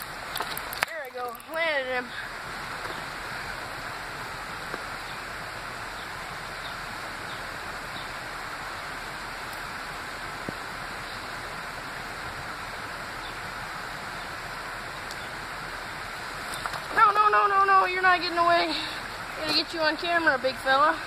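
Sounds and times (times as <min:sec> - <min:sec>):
faint clicks: 0:00.0 - 0:01.7
light rain: 0:00.0 - 0:21.0
river flowing: 0:00.0 - 0:21.0.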